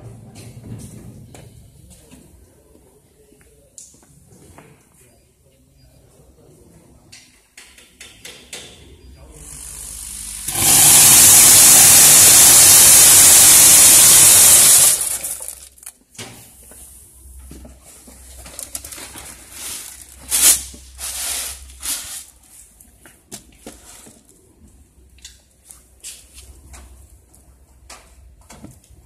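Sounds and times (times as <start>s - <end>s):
compressed air hiss: 9.6s - 15.6s, 19.6s - 22.3s
clicks and rustles of beans: 18.0s - 24.6s.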